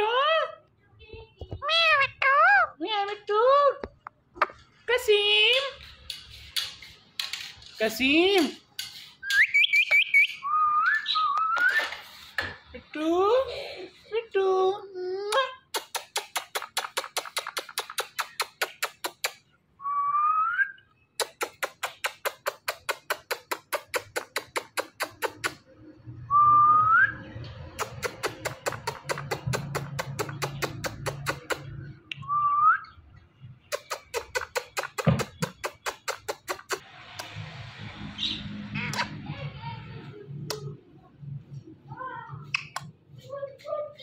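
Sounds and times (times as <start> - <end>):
rapid lip-kissing sounds: 15.3 - 19.5, 21.2 - 25.8, 27.6 - 31.9, 33.6 - 37.4, 42.4 - 43.8.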